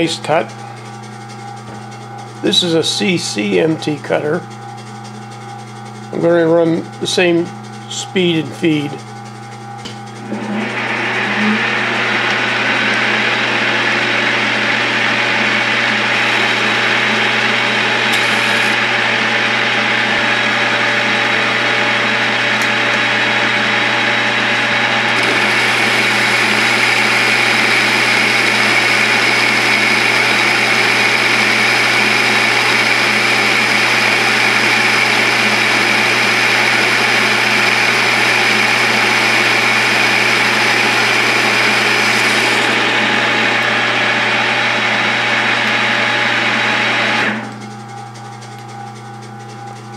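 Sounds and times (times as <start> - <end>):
lathe motor hum: 0.0 - 49.9.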